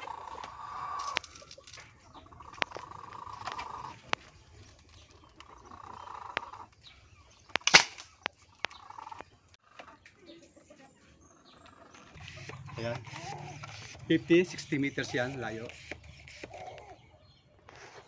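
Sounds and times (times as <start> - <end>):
air rifle shot: 7.6 - 8.0.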